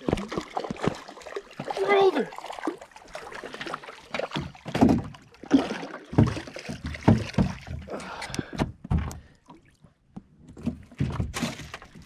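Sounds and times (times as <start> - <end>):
thumps on boat deck and hull: 4.2 - 9.3, 10.1 - 12.0.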